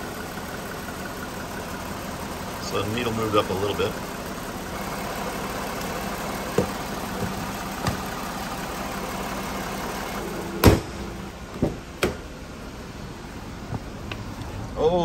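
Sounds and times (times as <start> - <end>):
car engine idling: 0.0 - 15.0
sharp knocks: 6.5 - 8.1, 10.6 - 12.3
loud slam: 10.6 - 11.1.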